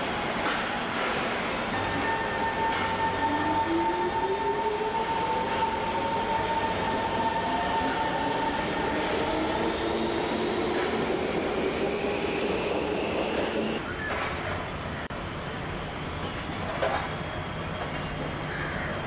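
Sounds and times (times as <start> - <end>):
wheel-on-rail noise: 0.0 - 19.0
electric train motor whine: 1.1 - 13.8.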